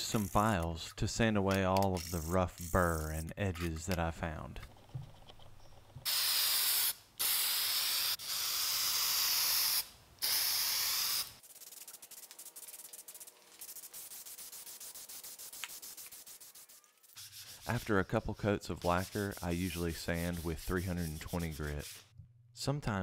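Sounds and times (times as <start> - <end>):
aerosol spray can hissing: 6.1 - 17.8.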